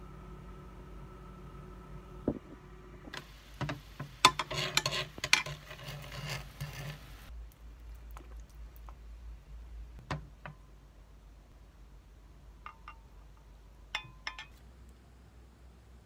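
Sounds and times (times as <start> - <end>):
broth boiling and spitting: 3.1 - 9.7
metal spoon clinking on dish: 13.9 - 14.6.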